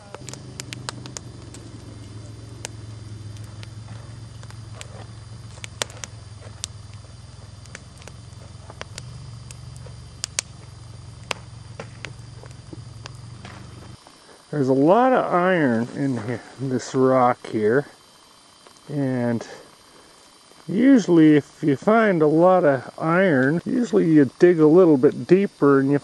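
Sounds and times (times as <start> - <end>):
atv engine humming: 0.0 - 25.4
sharp clicks: 0.1 - 3.7, 5.5 - 7.0, 8.8 - 9.6, 10.2 - 10.6.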